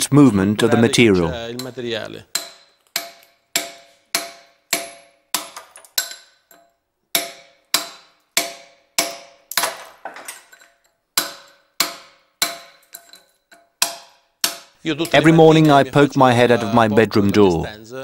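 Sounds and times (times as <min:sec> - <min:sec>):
hammer striking chisel on stone: 0:01.6 - 0:15.8.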